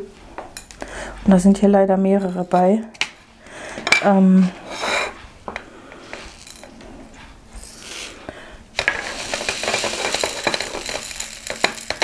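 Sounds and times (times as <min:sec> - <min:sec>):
small plastic beads rattling: 0:08.8 - 0:12.0.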